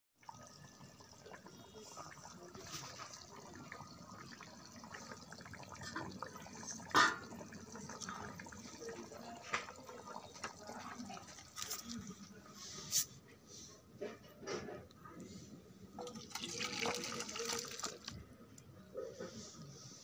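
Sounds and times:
curry bubbling and popping: 0:00.2 - 0:12.4, 0:16.0 - 0:18.3.

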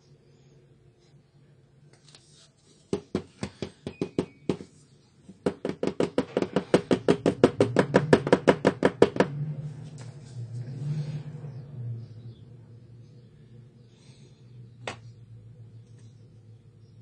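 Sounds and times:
plastic cartridge knocking on wood: 0:05.4 - 0:09.3.

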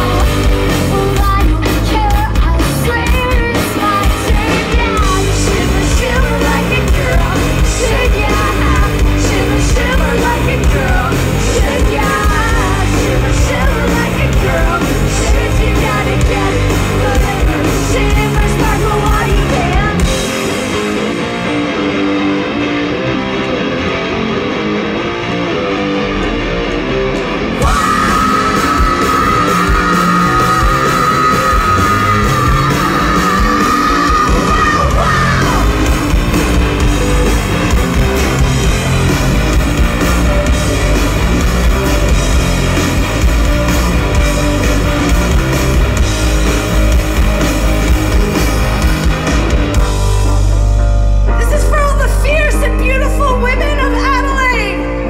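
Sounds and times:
person singing: 0:00.0 - 0:20.4, 0:27.6 - 0:36.4
drums and cymbals: 0:00.0 - 0:21.7, 0:27.6 - 0:50.8
bass guitar: 0:00.0 - 0:55.0
distorted electric guitars: 0:00.0 - 0:55.0.

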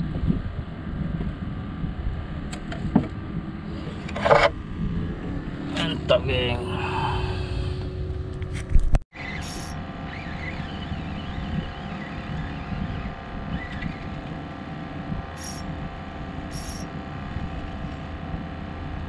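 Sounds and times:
boat engine droning: 0:00.0 - 0:19.0
wind on microphone: 0:00.0 - 0:19.0
high hissing zips: 0:09.3 - 0:09.8, 0:15.4 - 0:15.6, 0:16.5 - 0:16.8.

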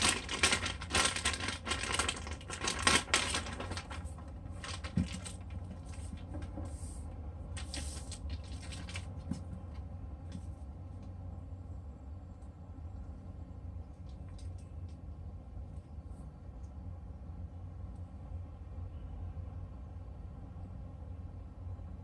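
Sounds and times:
plastic bag crinkling: 0:00.0 - 0:06.7, 0:07.5 - 0:09.8
steady low hum: 0:00.0 - 0:22.0.

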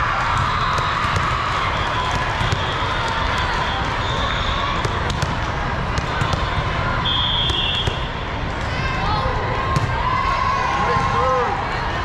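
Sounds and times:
crowd chatter: 0:00.0 - 0:12.0
volleyball hits and bounces: 0:00.2 - 0:08.8, 0:09.6 - 0:10.0
referee's whistle: 0:03.6 - 0:04.8, 0:07.0 - 0:08.2.

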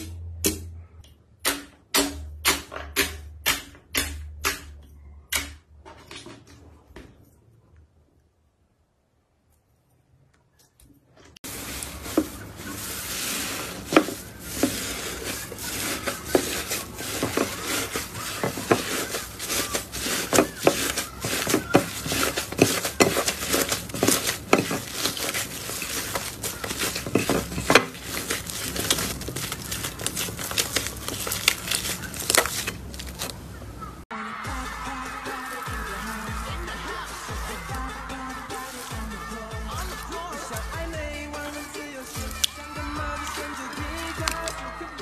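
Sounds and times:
slime squishing and popping: 0:14.6 - 0:33.3.

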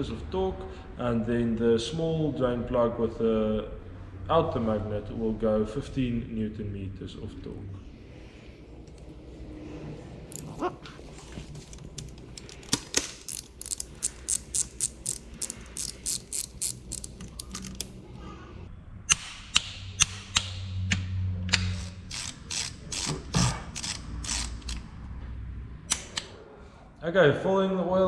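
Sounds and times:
socket ratchet clicking: 0:11.8 - 0:18.0, 0:21.5 - 0:24.9.

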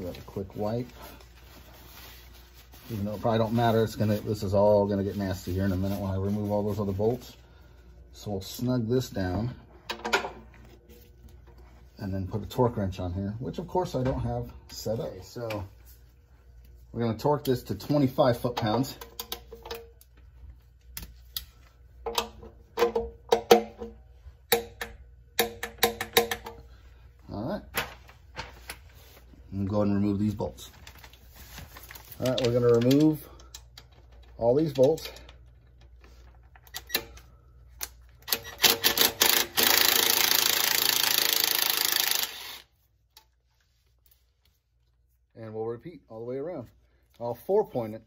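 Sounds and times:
torque wrench clicking: 0:37.8 - 0:42.6.

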